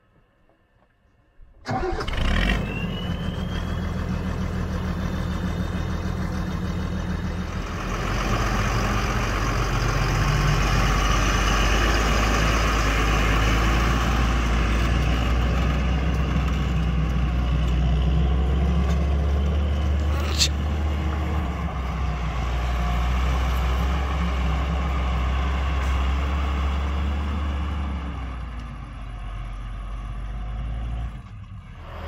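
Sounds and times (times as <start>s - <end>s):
tractor diesel engine droning: 1.6s - 32.0s
rising whistle: 2.5s - 4.3s.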